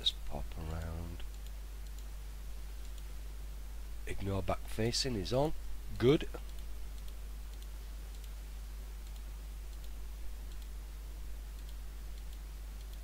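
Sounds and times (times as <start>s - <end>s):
steady low hum: 0.0s - 13.0s
computer mouse clicking: 0.8s - 2.1s, 2.8s - 3.1s, 6.4s - 8.4s, 9.0s - 10.7s, 11.6s - 13.0s.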